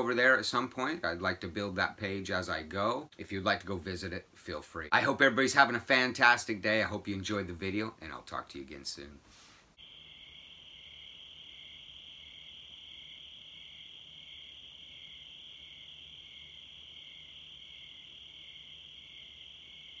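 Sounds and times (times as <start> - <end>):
crickets trilling: 9.8 - 20.0.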